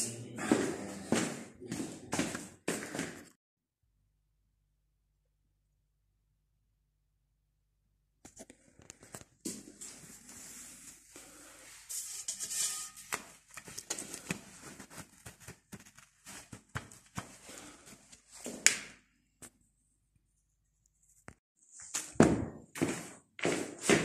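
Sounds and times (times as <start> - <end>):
fleece rustling and crinkling: 13.0 - 18.7.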